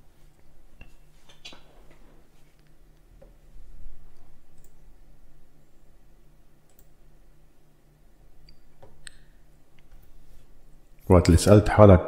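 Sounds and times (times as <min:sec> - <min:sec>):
low steady hum: 0:00.0 - 0:12.0
computer mouse clicks: 0:04.1 - 0:04.8, 0:06.7 - 0:07.0.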